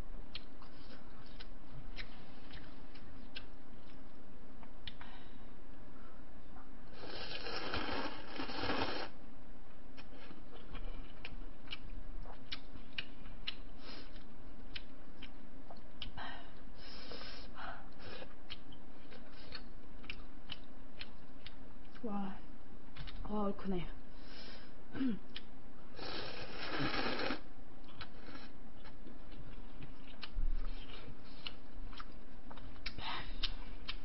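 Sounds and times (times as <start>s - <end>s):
chewing with wet mouth clicks: 0.3s - 5.0s, 10.0s - 16.2s, 18.3s - 22.0s, 27.8s - 34.0s
person slurping noodles: 7.0s - 9.2s, 26.0s - 27.4s.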